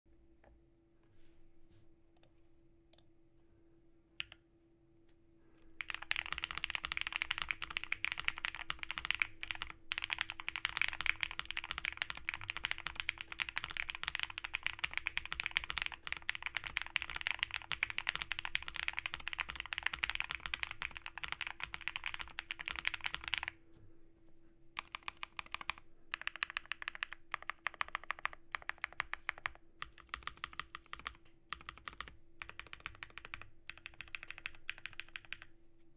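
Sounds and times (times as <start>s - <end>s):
mechanical keyboard typing: 5.8s - 23.6s, 24.8s - 35.5s.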